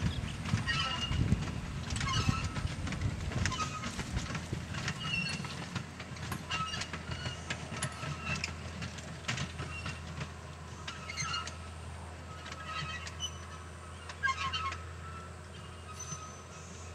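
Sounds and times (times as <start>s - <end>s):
train rumbling: 0.0s - 16.9s
wheels clanking over rail joints: 0.0s - 16.9s
short high squeals: 12.3s - 16.9s.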